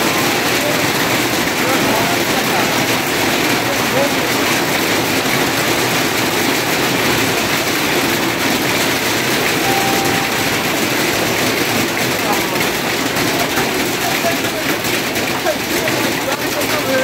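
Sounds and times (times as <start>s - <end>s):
hailstones clattering: 13.2s - 17.0s.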